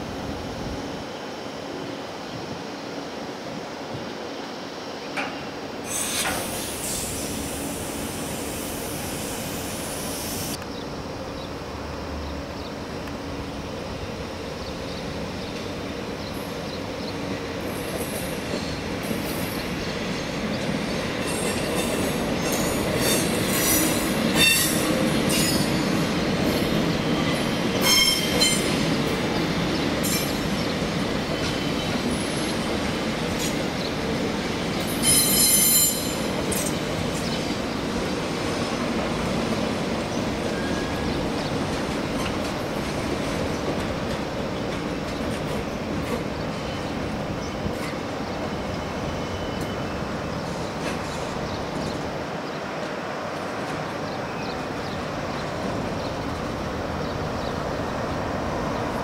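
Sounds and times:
train rolling on rails: 0.0 - 59.0
train wheels squealing: 5.8 - 10.6, 14.9 - 33.9, 34.7 - 37.6, 40.1 - 42.5, 44.6 - 52.0.

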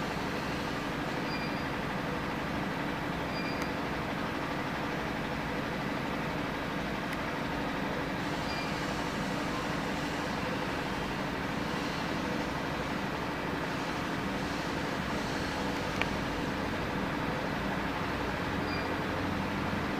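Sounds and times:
hiss: 8.2 - 16.2.

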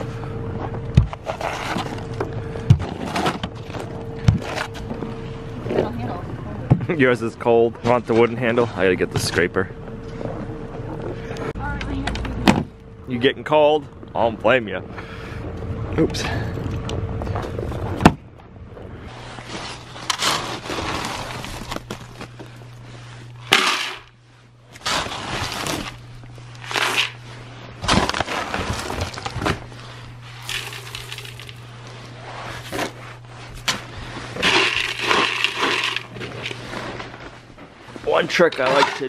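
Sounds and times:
low hum: 0.0 - 39.0
ice scraper on windshield: 19.6 - 21.5, 26.6 - 27.2, 34.3 - 36.7
pellets scooped in plastic bucket: 26.6 - 27.2, 28.0 - 37.2.

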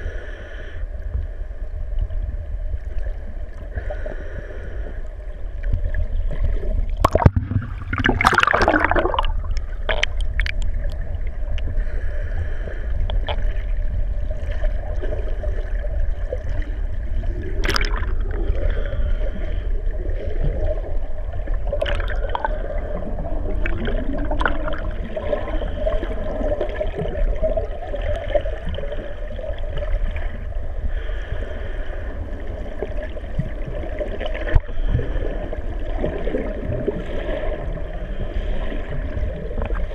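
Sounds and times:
underwater water rumble: 0.0 - 39.9
bubbles and splashes from kicks: 5.6 - 11.8, 13.1 - 18.9, 20.0 - 30.5, 32.7 - 37.9.

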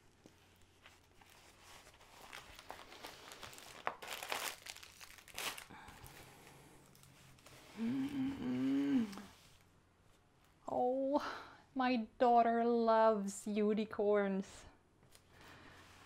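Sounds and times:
plastic sheet crinkling: 0.0 - 7.6.

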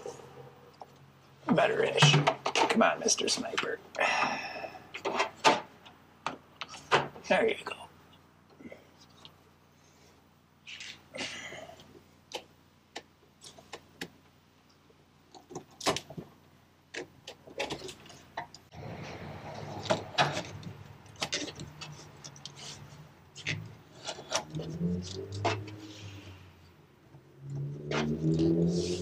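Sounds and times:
parts clicking and knocking: 0.8 - 3.7, 11.8 - 25.9.

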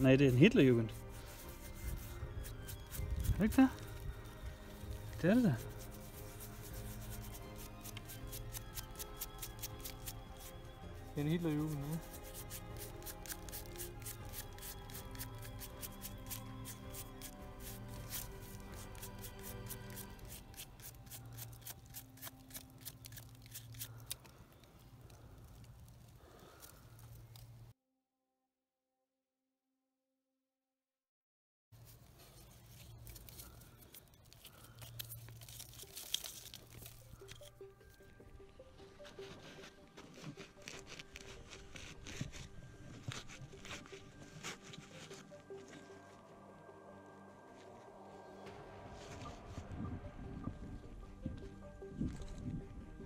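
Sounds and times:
dirt crunching and scraping: 0.0 - 27.7, 31.8 - 46.6
low droning music: 0.0 - 27.8, 31.8 - 53.0
toothbrush scrubbing metal: 5.2 - 10.5, 11.5 - 24.1.

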